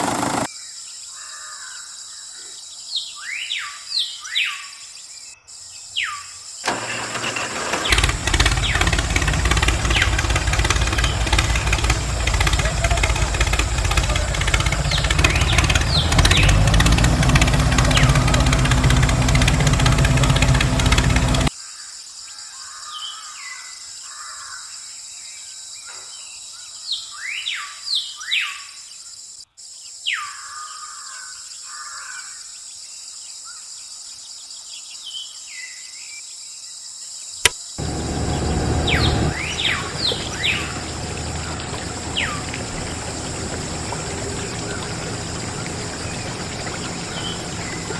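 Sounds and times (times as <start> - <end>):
loud mechanical running noise: 0.0 - 0.5, 6.7 - 21.5, 37.8 - 47.9
small birds chirping: 7.8 - 21.5, 37.6 - 47.9.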